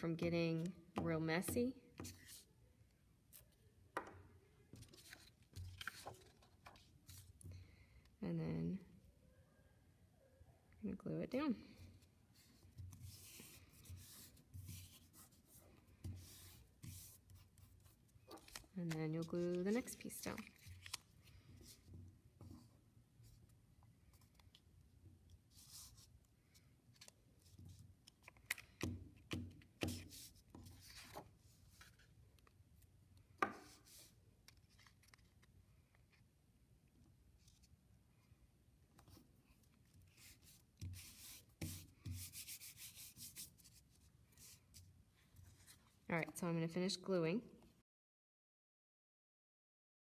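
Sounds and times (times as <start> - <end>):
palm rubbing on paper: 12.4 - 17.7, 25.5 - 26.1, 40.1 - 44.8
glue stick rubbing on paper: 40.1 - 43.8.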